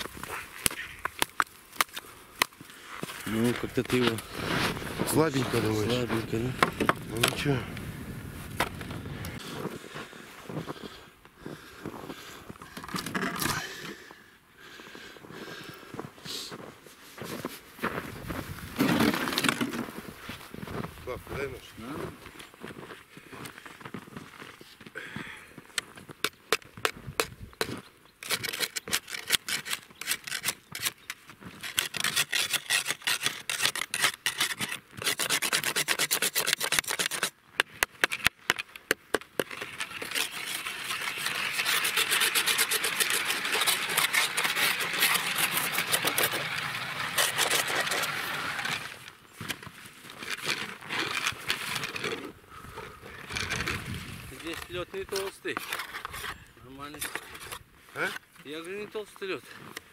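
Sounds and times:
ice auger boring through ice: 39.4 - 49.1.

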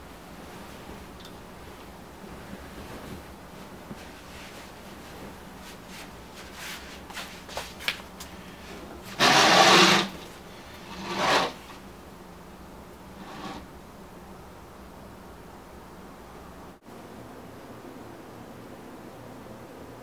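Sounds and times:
curtains sliding along rail: 9.0 - 11.8, 13.1 - 13.7.

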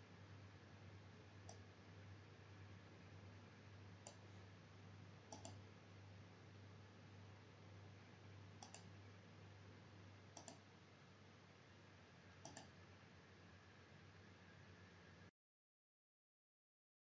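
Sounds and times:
faint electrical hum: 0.0 - 15.3
computer mouse clicks: 1.4 - 1.7, 4.0 - 4.3, 5.3 - 5.6, 8.6 - 9.0, 10.3 - 10.7, 12.4 - 12.8.

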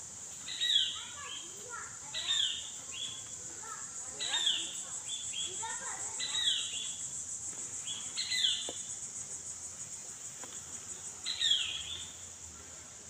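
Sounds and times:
insects droning: 0.0 - 13.0.

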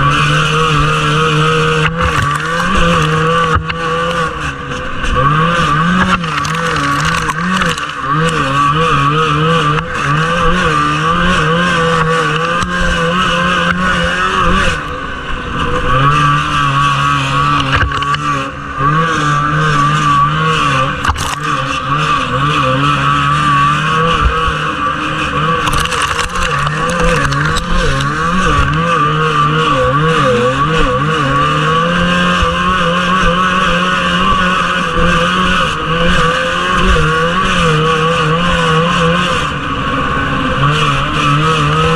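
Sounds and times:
snowmobile engine racing: 0.0 - 41.9.

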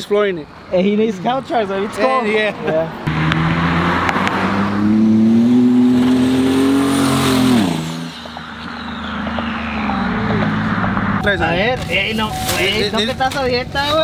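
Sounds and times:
truck engine accelerating: 3.0 - 11.6
faint high turbo whistle: 8.0 - 11.4.

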